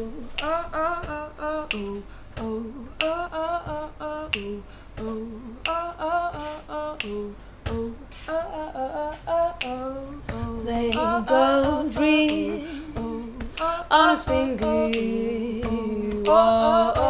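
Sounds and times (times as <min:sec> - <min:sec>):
woman singing a cappella: 0:00.0 - 0:17.0
finger snaps: 0:00.3 - 0:00.8, 0:01.6 - 0:02.1, 0:02.9 - 0:08.5, 0:09.5 - 0:17.0.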